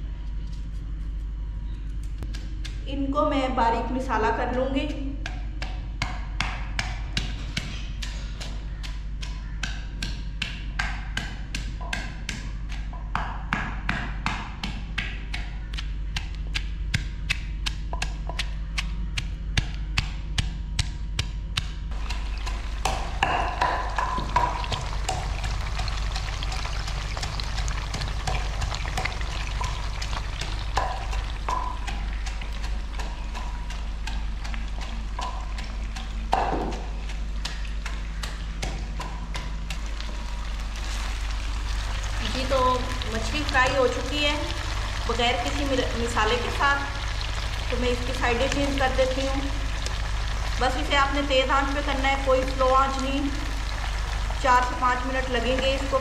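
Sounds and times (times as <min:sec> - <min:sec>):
wooden pestle pounding in mortar: 0:04.5 - 0:25.5, 0:27.2 - 0:40.2
fish frying in hot oil: 0:21.9 - 0:38.4, 0:39.0 - 0:56.0.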